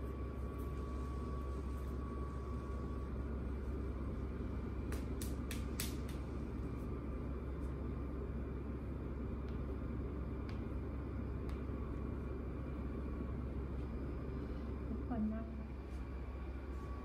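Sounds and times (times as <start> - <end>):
low room rumble: 0.0 - 17.0.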